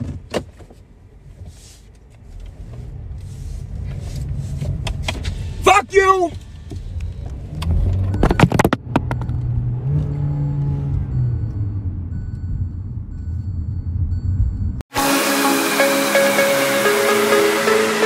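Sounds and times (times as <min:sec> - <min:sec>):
car engine rumbling: 0:00.0 - 0:18.0
loud electronic music: 0:14.9 - 0:18.0.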